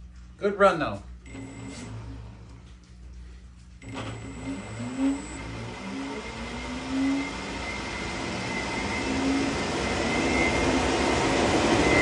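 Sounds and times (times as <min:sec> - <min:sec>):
ducted fan whining rush: 0:03.8 - 0:12.0.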